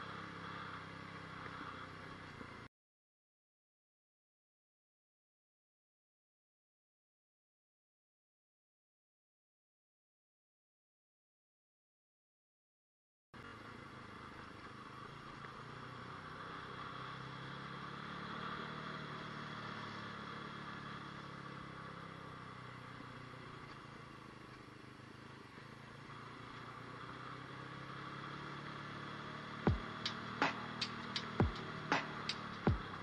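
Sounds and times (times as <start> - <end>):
motorcycle engine running: 0.0 - 2.7, 13.4 - 33.0
electronic music with sharp beats: 29.7 - 33.0.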